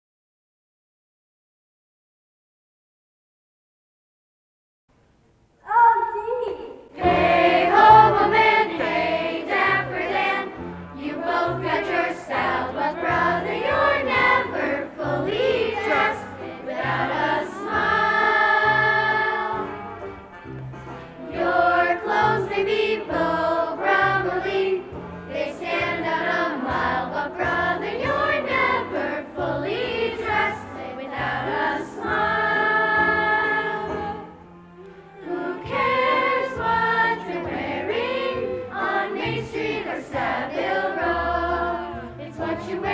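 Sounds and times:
chorus singing a show tune: 6.9s - 19.8s, 21.3s - 34.3s, 35.2s - 42.9s
instrumental accompaniment: 6.9s - 42.9s.

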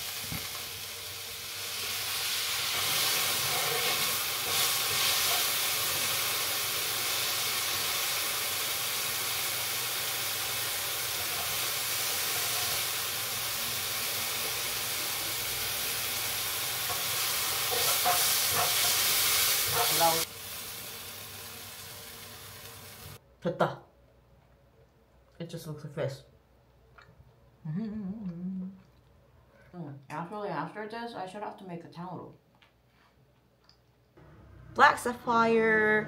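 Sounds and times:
mushrooms sizzling in a frying pan: 0.0s - 23.2s.

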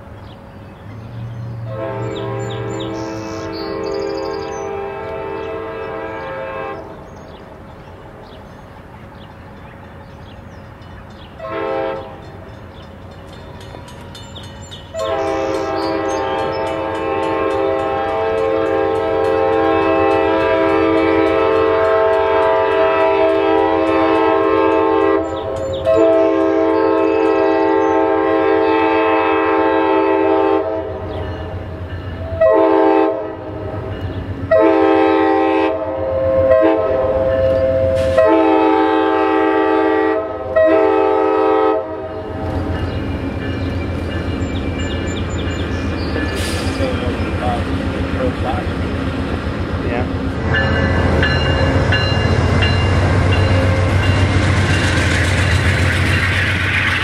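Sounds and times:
train rumble: 0.0s - 57.0s
train air horn blasts: 1.6s - 7.0s, 11.4s - 12.4s, 14.9s - 31.2s, 32.2s - 33.9s, 34.5s - 42.5s, 46.2s - 47.6s, 50.4s - 54.6s.

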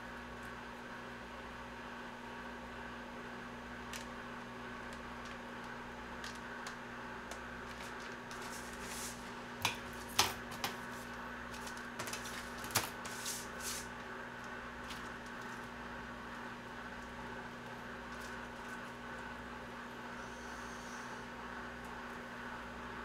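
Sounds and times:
steady low hum: 0.0s - 23.0s
dry noodles rustling and crackling: 4.0s - 16.0s.

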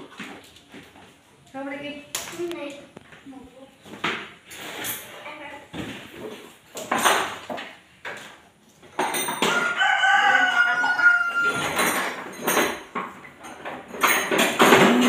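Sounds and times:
knocks and clatter: 11.6s - 15.0s.

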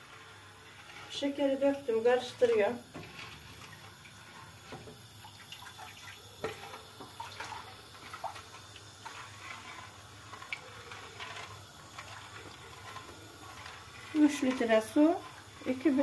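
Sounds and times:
liquid sloshing in pot: 0.2s - 16.0s.

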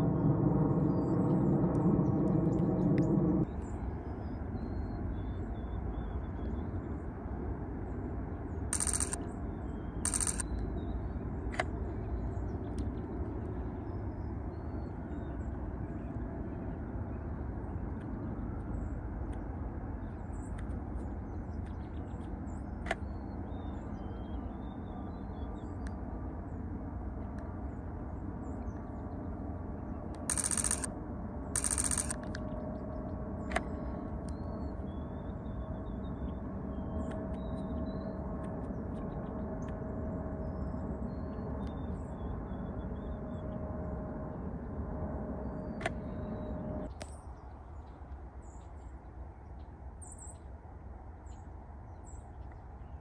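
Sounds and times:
low background rumble: 0.0s - 53.0s
faint clicks: 10.1s - 10.6s, 30.1s - 30.9s, 31.6s - 32.5s.

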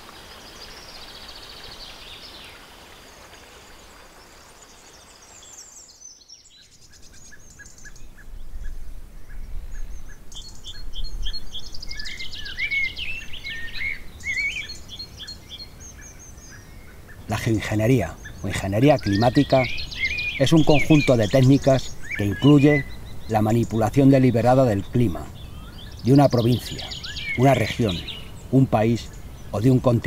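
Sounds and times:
birds singing and chirping: 0.0s - 30.0s.

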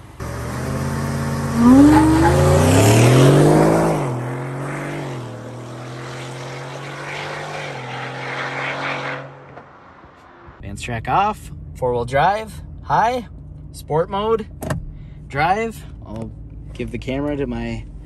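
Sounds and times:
engine accelerating hard: 0.0s - 9.5s.

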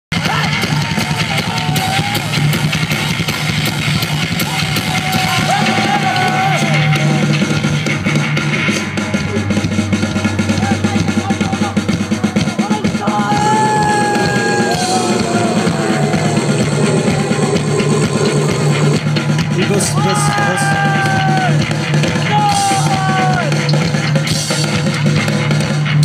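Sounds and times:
bass guitar: 0.1s - 26.0s
drum kit playing: 0.1s - 26.0s
electric guitars: 13.2s - 25.8s.

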